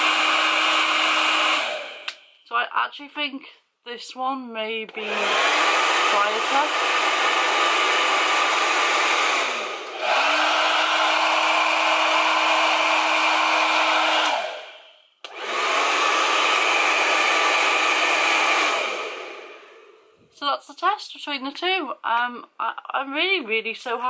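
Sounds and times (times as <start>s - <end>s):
hair dryer running: 0.0s - 2.3s, 4.9s - 20.2s.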